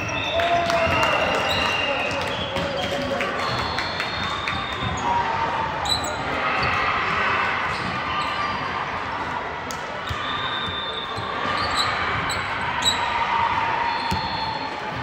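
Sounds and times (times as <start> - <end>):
murmur of voices: 0.0 - 15.0
shoes squeaking on court floor: 3.4 - 8.7, 10.0 - 15.0.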